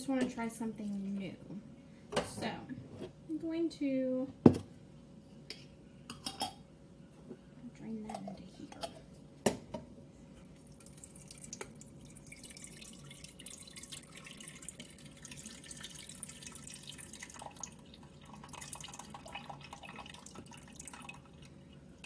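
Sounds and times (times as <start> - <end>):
liquid trickling into pot: 10.6 - 22.0.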